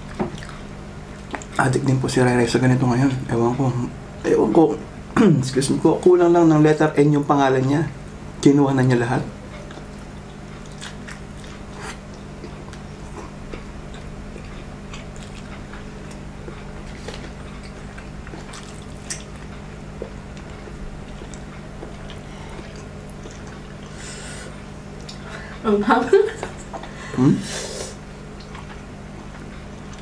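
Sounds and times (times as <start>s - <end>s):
steady low hum: 0.0s - 30.0s
close-up chewing: 9.5s - 25.6s, 28.2s - 30.0s
wet mouth clicks: 25.0s - 25.2s.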